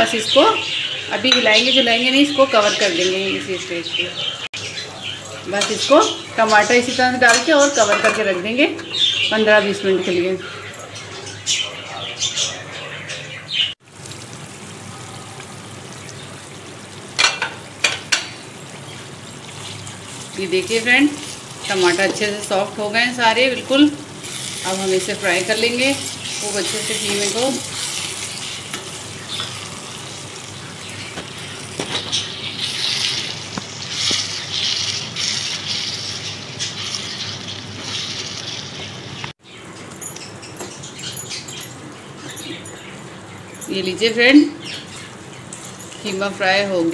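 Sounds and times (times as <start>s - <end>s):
meat sauce bubbling and sizzling: 13.8s - 20.5s
meat and tomatoes sizzling: 13.8s - 39.4s.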